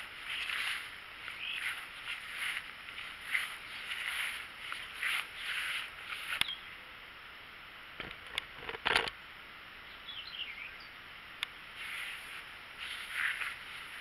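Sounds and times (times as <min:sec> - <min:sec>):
bird chirping: 0:00.0 - 0:06.9, 0:09.8 - 0:11.0.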